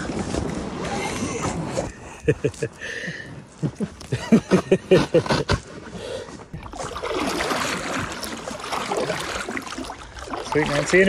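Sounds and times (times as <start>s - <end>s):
paddle blades dipping in water: 5.5s - 11.0s
water washing along hull: 6.5s - 11.0s.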